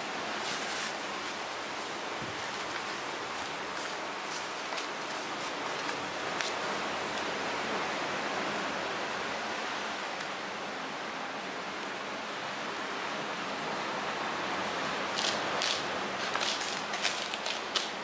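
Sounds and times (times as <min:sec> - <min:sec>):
faint light ticks and rustles: 0:00.5 - 0:07.3.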